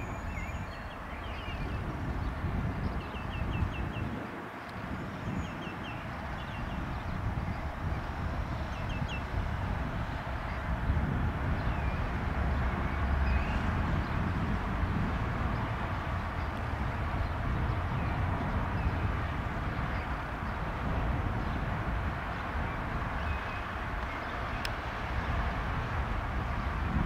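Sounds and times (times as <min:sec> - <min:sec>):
small birds chirping: 0:00.0 - 0:09.4.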